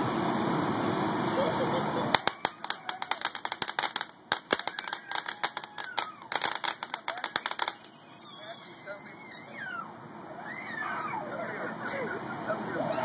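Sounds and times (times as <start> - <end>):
firework crackling: 0.0 - 8.6.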